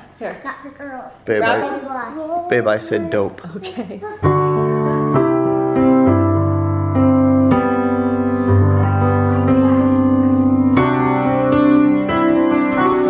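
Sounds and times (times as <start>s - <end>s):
digital piano chords: 4.0s - 13.0s.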